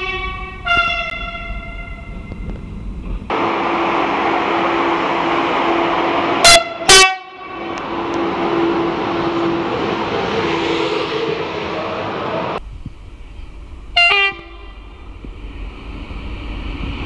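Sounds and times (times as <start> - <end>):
locomotive horn blasts: 0.0 - 2.2, 6.4 - 9.7, 14.0 - 14.8
train rumbling past: 0.0 - 17.0.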